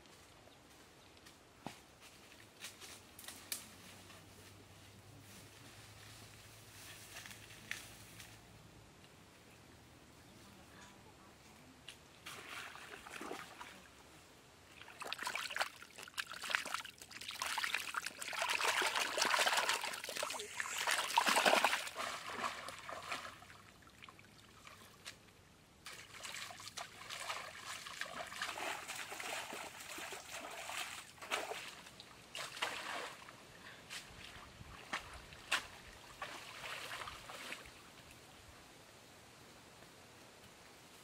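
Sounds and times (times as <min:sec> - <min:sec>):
water splashing with basket: 0:14.8 - 0:24.8, 0:25.9 - 0:33.2.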